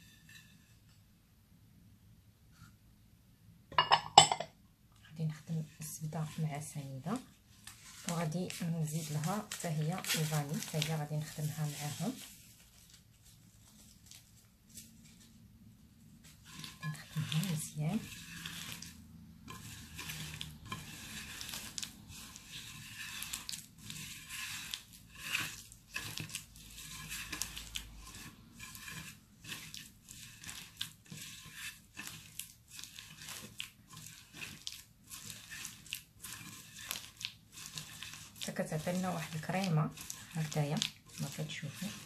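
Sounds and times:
butter squishing on plate: 0:16.2 - 0:42.0.

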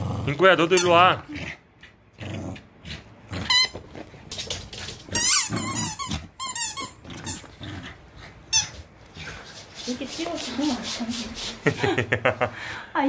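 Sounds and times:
squeaky dog toy squeaking: 0:05.2 - 0:07.4.

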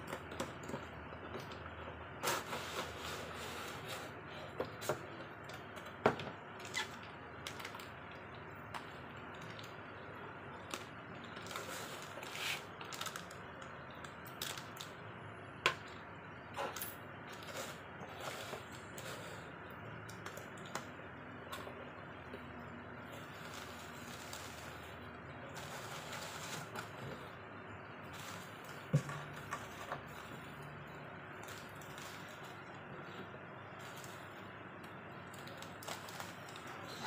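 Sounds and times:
packaging rustling and crinkling: 0:10.6 - 0:14.9, 0:35.3 - 0:37.0.

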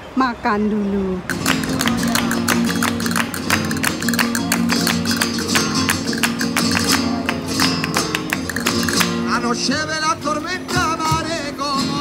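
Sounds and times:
rhythmic hand-clapping: 0:01.3 - 0:09.5
acoustic guitar playing: 0:01.3 - 0:12.0.

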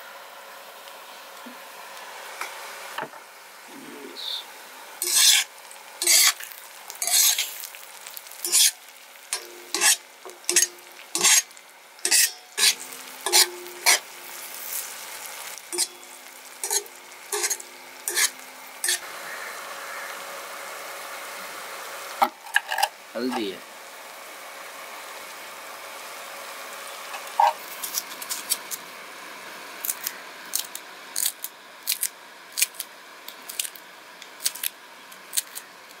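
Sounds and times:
oil sizzling: 0:00.0 - 0:31.7
metal spatula scraping griddle: 0:05.0 - 0:07.7, 0:08.4 - 0:19.0.

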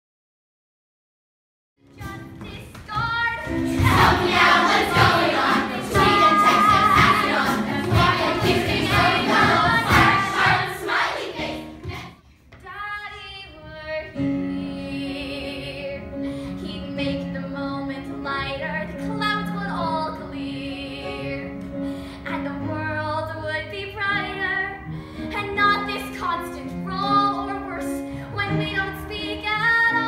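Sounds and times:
group singing with accompaniment: 0:03.7 - 0:12.2.

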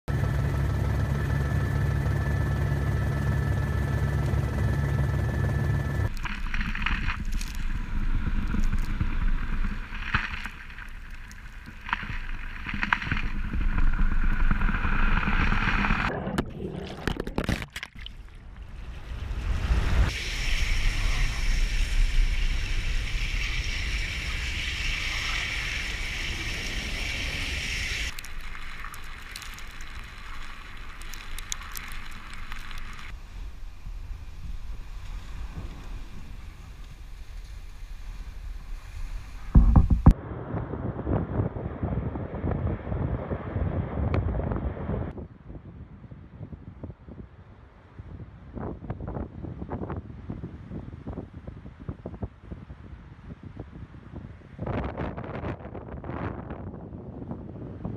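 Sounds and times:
helicopter drone: 0:00.1 - 0:06.4, 0:18.9 - 0:28.2
ship machinery hum: 0:00.1 - 0:40.1
ship hull crunching through ice: 0:06.1 - 0:18.2, 0:28.1 - 0:33.2
wind buffeting microphone: 0:32.9 - 0:57.9.

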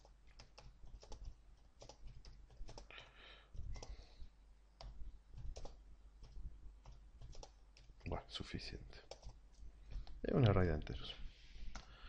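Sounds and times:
keyboard typing: 0:00.0 - 0:04.1, 0:04.8 - 0:08.2, 0:09.0 - 0:10.7.

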